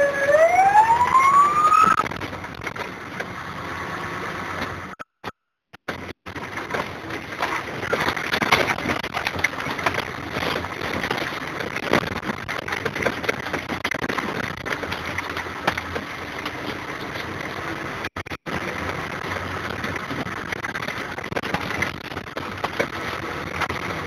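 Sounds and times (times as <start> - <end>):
engine rumble: 0.0 - 5.0, 5.9 - 24.0
rattling and crackling: 5.8 - 24.0.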